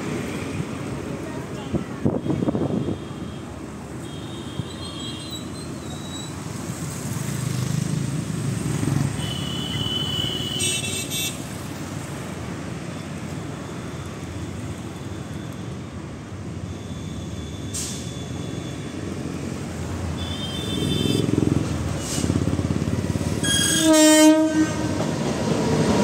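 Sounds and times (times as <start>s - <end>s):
cars passing: 0.0s - 15.0s, 18.3s - 26.0s
vehicle horn: 9.2s - 11.4s, 20.2s - 21.4s, 23.4s - 25.0s.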